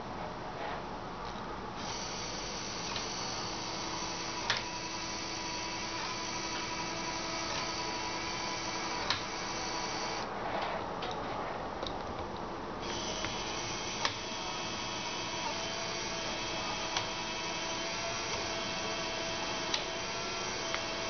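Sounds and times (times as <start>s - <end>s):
small gear motor whirring: 1.8s - 10.3s, 12.8s - 21.0s.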